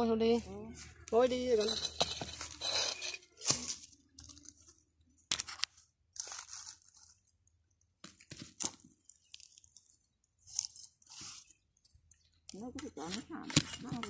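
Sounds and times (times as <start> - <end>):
knife scraping bamboo: 1.5 - 3.9
bamboo cracking: 3.4 - 13.8.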